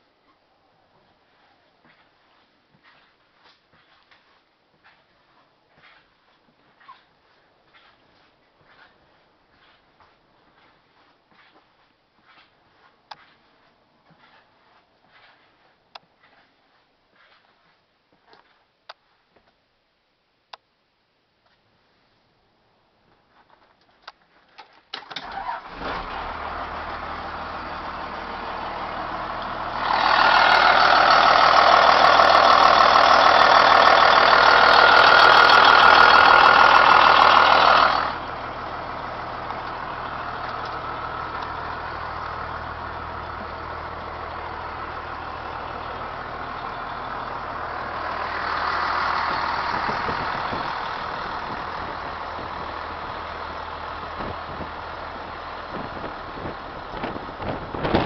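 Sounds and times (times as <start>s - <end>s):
diesel bus engine idling: 25.2s - 58.0s.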